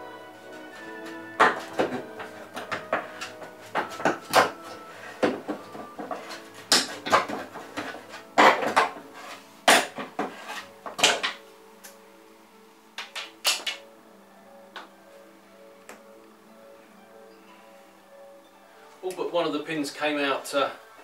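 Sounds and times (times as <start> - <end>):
quiet background music: 0.0 - 21.0
wooden trim cracking and scraping: 0.7 - 11.4.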